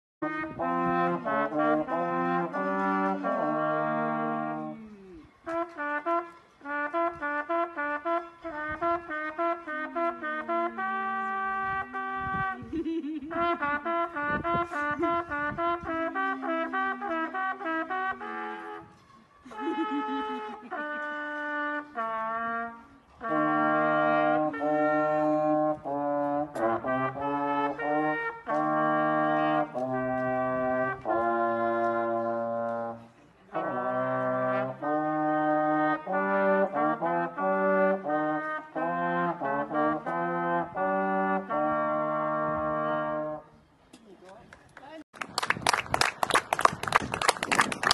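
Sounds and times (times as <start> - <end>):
trombone playing slow tune: 0.2 - 4.9, 5.5 - 12.6, 13.3 - 18.9, 19.5 - 43.5
trumpet playing slow tune: 0.2 - 12.7, 13.3 - 43.6.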